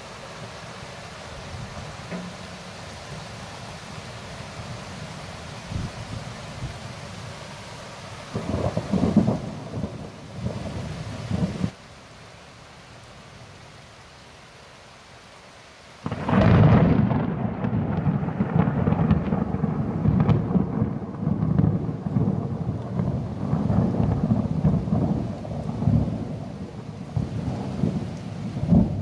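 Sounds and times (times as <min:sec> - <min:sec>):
rain hiss: 0:00.0 - 0:29.0
thunder crash and rumble: 0:16.0 - 0:26.3.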